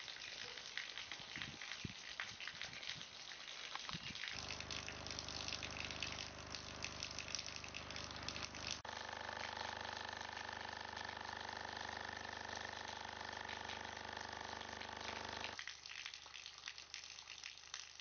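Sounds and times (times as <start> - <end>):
water gushing and splashing: 3.8 - 8.8.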